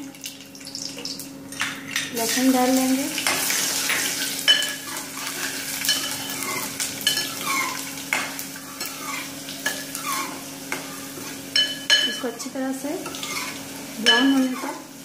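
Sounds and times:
garlic sizzling in hot oil: 0.0 - 15.0
metal spoon scraping a pan: 3.2 - 12.3, 13.0 - 14.8.

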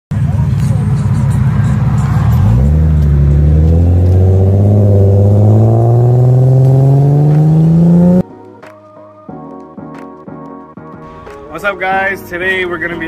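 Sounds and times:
car accelerating past: 1.0 - 8.2.

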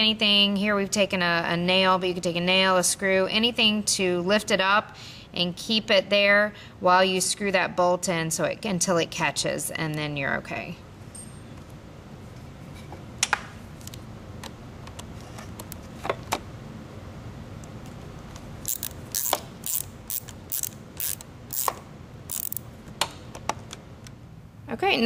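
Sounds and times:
ratcheting strokes: 18.6 - 22.7
socket ratchet clicking: 18.6 - 22.7.

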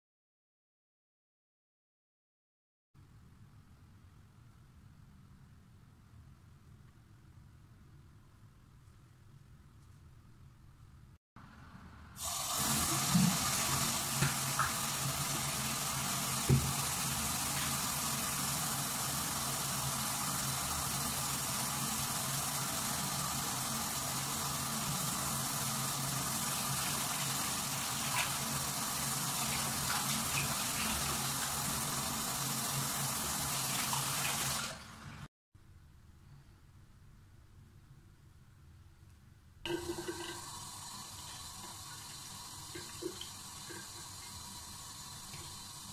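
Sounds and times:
tap running into sink: 12.3 - 17.8.

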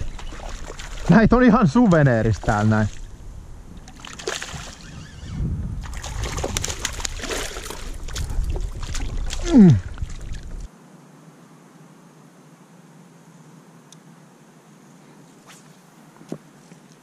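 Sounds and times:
fish thrashing and splashing: 0.0 - 1.1, 3.9 - 4.9, 5.8 - 10.7
vocal exclamation: 9.4 - 10.0.

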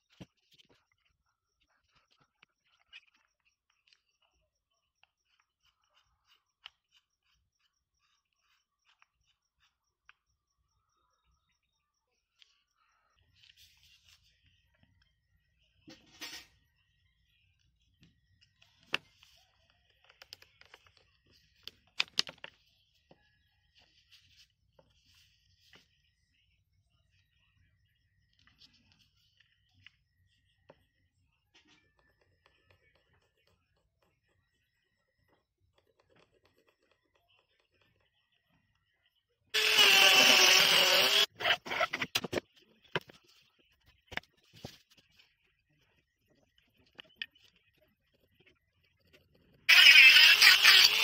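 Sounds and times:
power tool running on wood: 39.6 - 41.3.

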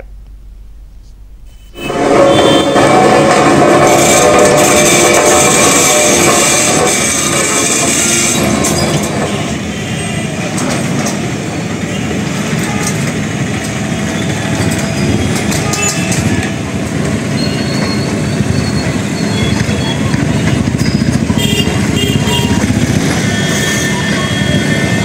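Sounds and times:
road machinery rumbling: 0.0 - 25.0
machinery clanks: 1.8 - 25.0.

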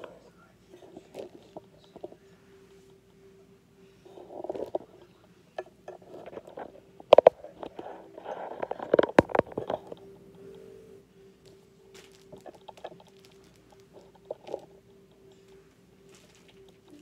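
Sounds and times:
faint steady hum: 0.0 - 17.0
rustling: 4.0 - 5.2, 11.4 - 17.0
knocks and clicks of handling: 8.6 - 10.0.

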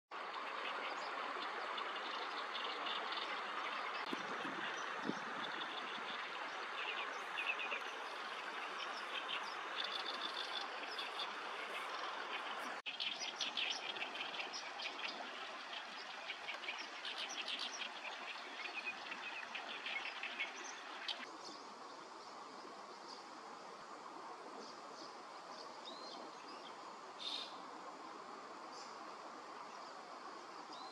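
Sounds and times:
steady background hiss: 0.2 - 30.9
bird chirping: 2.0 - 21.3.

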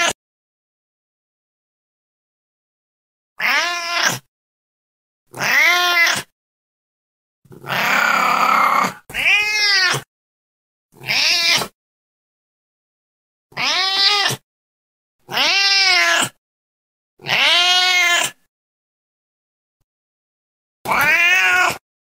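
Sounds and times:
cat meowing: 3.4 - 4.3, 5.3 - 6.3, 7.6 - 10.1, 11.0 - 11.7, 13.5 - 14.4, 15.3 - 16.4, 17.2 - 18.4, 20.9 - 21.8.

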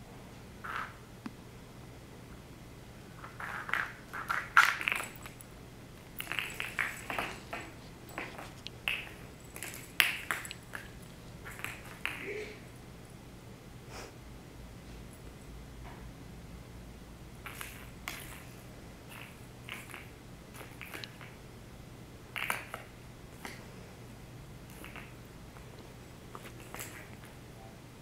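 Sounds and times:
plastic egg skittering on wood floor: 3.2 - 5.4, 6.0 - 12.3, 26.4 - 27.3.

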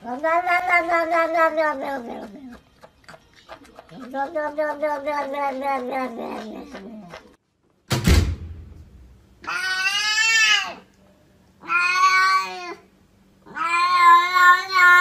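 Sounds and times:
cat meowing: 0.0 - 2.5, 9.4 - 10.8, 11.6 - 12.8, 13.4 - 15.0
sharp thump: 7.9 - 9.2.

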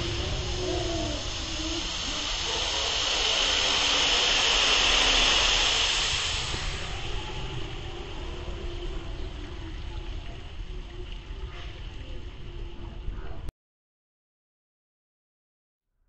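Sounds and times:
water spray hissing: 0.0 - 10.6.

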